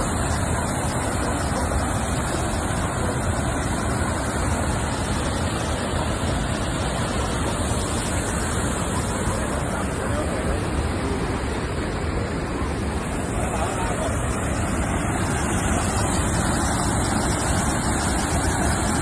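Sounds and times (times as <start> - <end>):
water rushing over spillway: 0.0 - 19.0.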